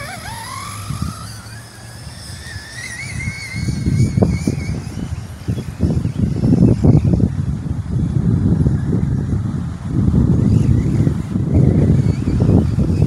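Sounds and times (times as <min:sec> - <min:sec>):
electric motor whining: 0:00.0 - 0:09.3
wind buffeting microphone: 0:00.0 - 0:13.0.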